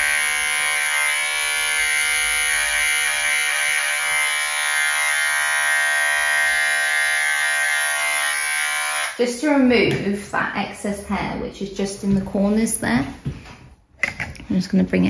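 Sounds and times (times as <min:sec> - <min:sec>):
electric clipper buzzing: 0:00.0 - 0:09.2.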